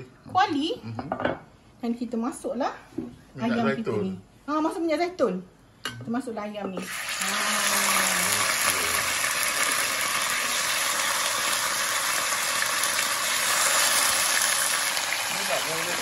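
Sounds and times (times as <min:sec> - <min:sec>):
chicken sizzling in frying pan: 0:06.8 - 0:16.0.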